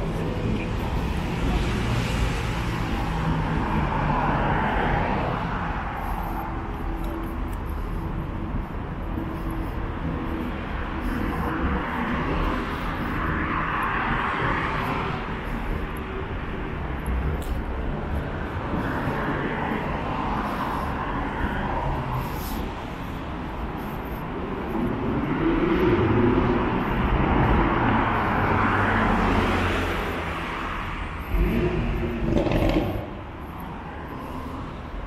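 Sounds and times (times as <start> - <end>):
cars passing: 0.0 - 35.0
hum of city traffic: 0.0 - 35.0.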